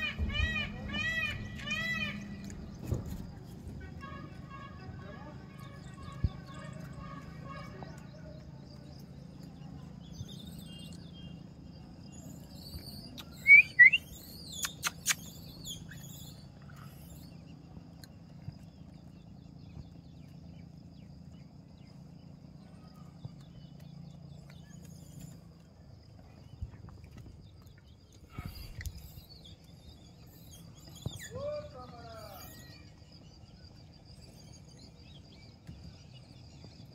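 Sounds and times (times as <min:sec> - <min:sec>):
rising animal squeaks: 0:13.2 - 0:17.2
sharp clicks: 0:14.5 - 0:15.6.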